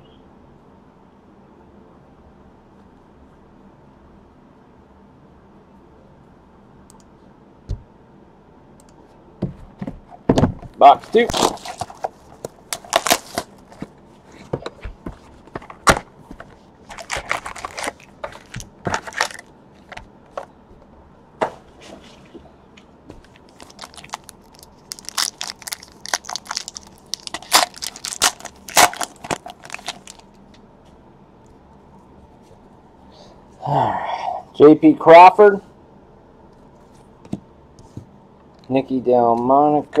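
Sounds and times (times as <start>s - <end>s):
cardboard and card packs tearing: 11.0s - 13.6s, 16.9s - 19.5s, 23.5s - 30.2s.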